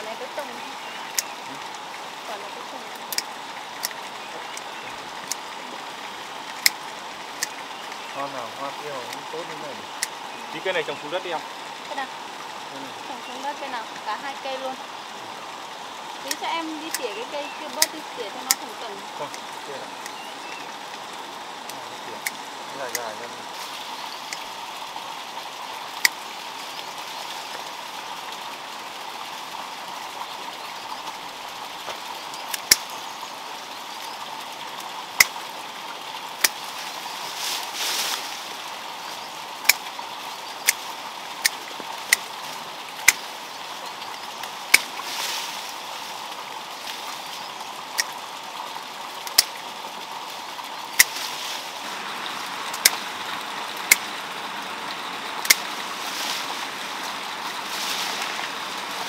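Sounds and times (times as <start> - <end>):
rustle: 0.0 - 59.0
stream water rushing: 0.0 - 59.0
shears snipping: 16.3 - 21.0, 36.4 - 38.5, 39.6 - 40.0, 40.6 - 42.4, 43.0 - 43.3, 44.4 - 46.2, 49.2 - 49.6, 51.0 - 54.3, 55.4 - 59.0.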